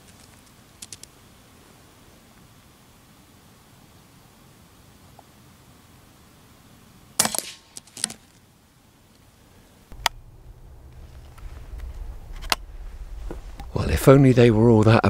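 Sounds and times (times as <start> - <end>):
faint clicks: 9.9 - 13.8
low rumble: 9.9 - 15.0.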